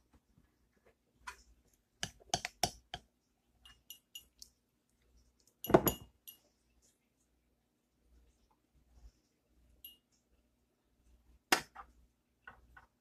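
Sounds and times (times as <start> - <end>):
spoon clinking against bowl: 3.6 - 4.5, 5.6 - 6.5.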